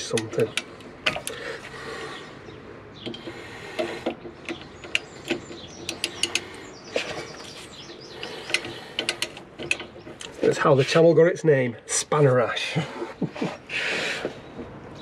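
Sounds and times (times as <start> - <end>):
socket ratchet clicking: 3.0 - 6.8.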